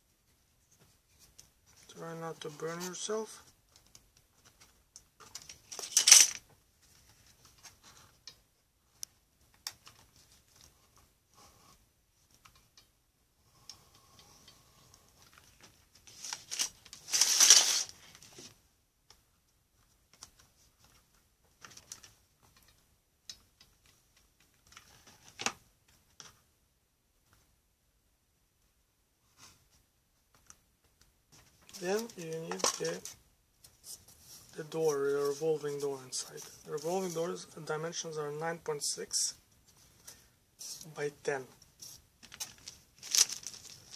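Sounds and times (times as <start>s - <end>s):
cellophane rustling: 15.3s - 18.4s, 42.2s - 43.9s.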